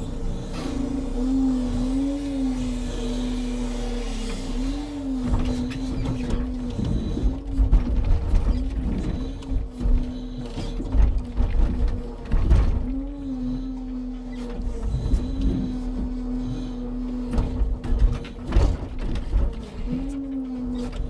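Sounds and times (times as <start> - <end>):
hydraulic crane humming: 0.0 - 21.0
logs knocking and creaking: 4.3 - 21.0.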